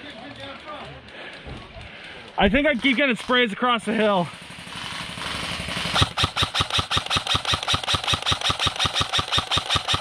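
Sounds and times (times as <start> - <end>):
airsoft rifle firing rapidly: 4.6 - 10.0.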